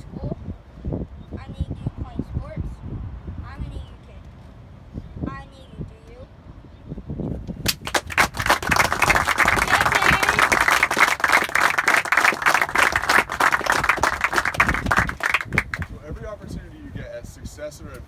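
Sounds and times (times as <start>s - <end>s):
group applauding: 7.7s - 15.9s.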